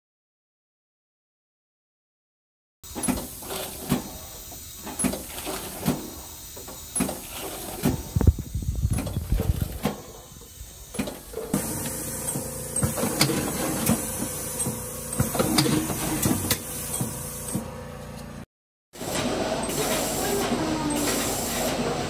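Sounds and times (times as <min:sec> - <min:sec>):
compressed air hissing: 0:02.9 - 0:17.7, 0:19.7 - 0:22.0.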